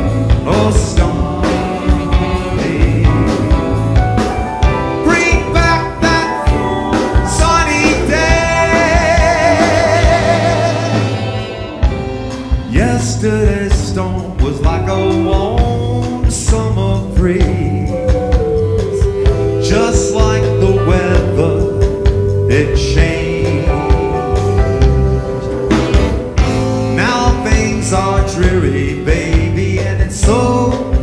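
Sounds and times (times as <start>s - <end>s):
man singing lead: 0.0s - 4.0s, 4.9s - 11.8s, 12.6s - 31.0s
electric guitar: 0.0s - 13.6s, 14.6s - 31.0s
saxophone: 0.0s - 13.7s, 14.9s - 31.0s
drums: 0.0s - 31.0s.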